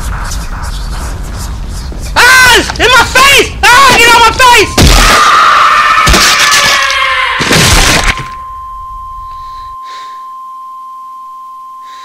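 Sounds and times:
high-pitched ringing tone: 8.1s - 12.0s.

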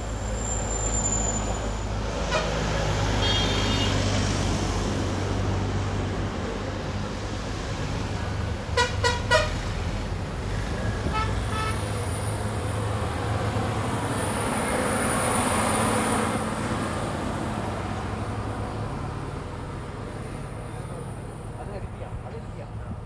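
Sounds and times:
low traffic rumble: 0.0s - 23.0s
vehicle horn beeps: 2.3s - 2.6s, 3.2s - 4.1s, 8.8s - 9.6s, 11.1s - 11.8s
higher fainter horn honks: 3.2s - 4.1s, 8.8s - 9.6s, 11.1s - 11.8s.

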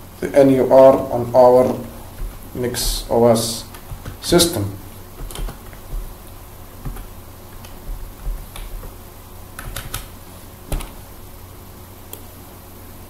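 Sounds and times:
computer keyboard keys clicking: 3.7s - 4.3s, 5.2s - 6.2s, 6.8s - 9.0s, 9.6s - 10.1s, 10.7s - 11.0s.

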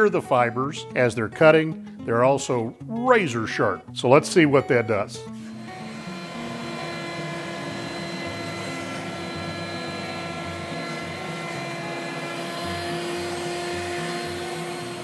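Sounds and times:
router whining: 5.2s - 15.0s.

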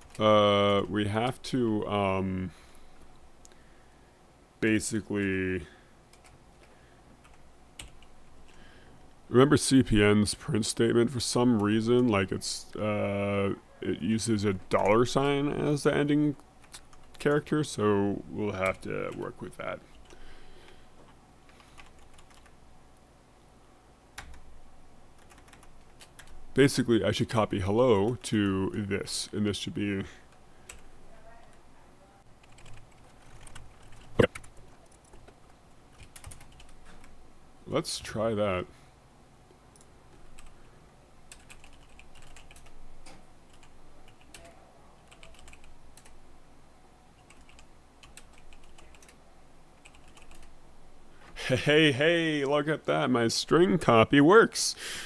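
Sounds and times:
keyboard typing: 0.0s - 1.4s, 6.1s - 8.6s, 21.5s - 22.5s, 25.2s - 26.4s, 32.4s - 37.1s, 41.3s - 46.2s, 47.2s - 49.2s, 49.8s - 50.5s.

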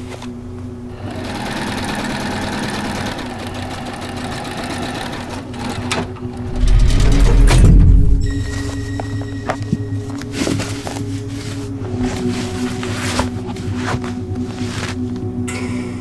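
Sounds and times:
sewing machine stitching: 1.0s - 7.2s
deep low rumble: 6.4s - 10.1s.

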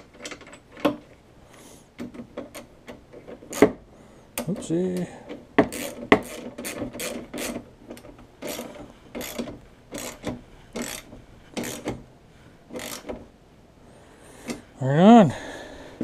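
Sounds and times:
ratchet wrench rasping: 5.6s - 7.6s, 8.4s - 12.0s, 12.7s - 13.2s.

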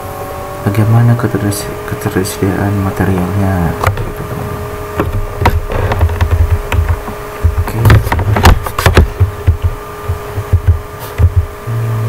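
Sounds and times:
sharp clicks and knocks: 3.8s - 11.5s.

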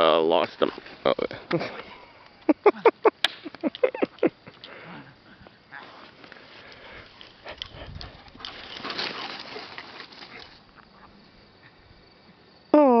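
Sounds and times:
dogs scuffling on grass: 5.8s - 10.8s.

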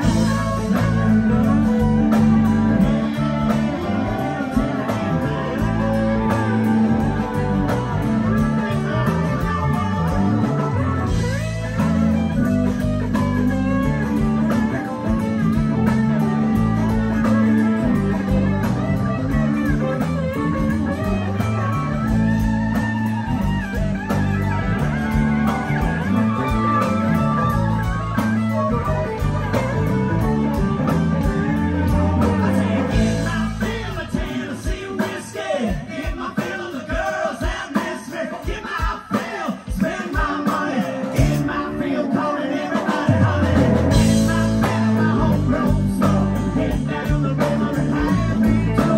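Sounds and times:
live country-rock band playing: 0.0s - 48.9s.

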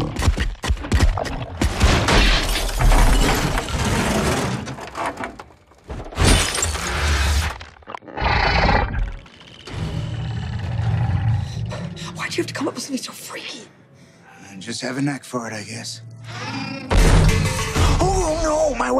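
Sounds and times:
glass shattering: 1.9s - 3.9s, 6.2s - 7.0s.

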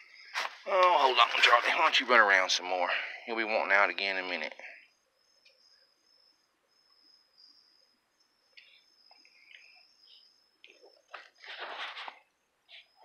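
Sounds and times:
high-pitched insect trill: 0.0s - 13.0s.

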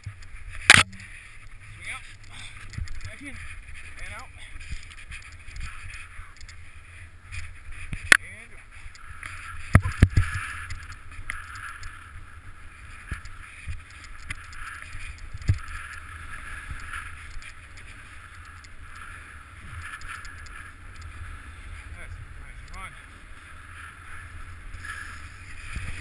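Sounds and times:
wind rumble on microphone: 8.8s - 26.0s.

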